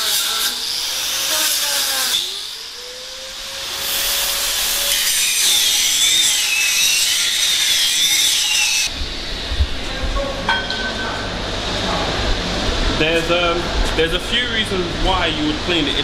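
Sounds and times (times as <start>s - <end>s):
angle grinder grinding steel: 0.0s - 8.9s.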